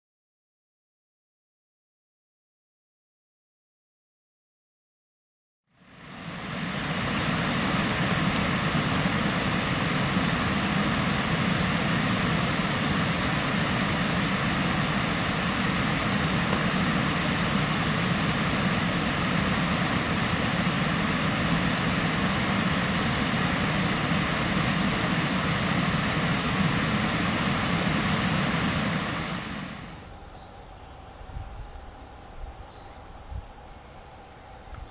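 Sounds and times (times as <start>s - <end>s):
fast-flowing river water: 5.8s - 30.0s.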